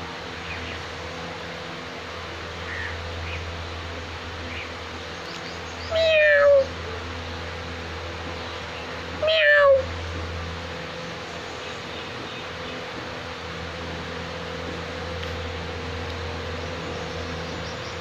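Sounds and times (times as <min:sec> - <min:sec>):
steady low hum: 0:00.0 - 0:18.0
kitten meowing: 0:05.9 - 0:06.7, 0:09.2 - 0:09.9.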